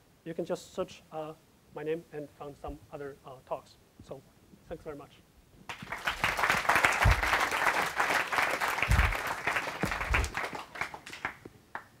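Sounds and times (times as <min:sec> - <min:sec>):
audience applauding: 0:05.7 - 0:11.9
low thumps: 0:07.0 - 0:07.5, 0:08.8 - 0:10.4.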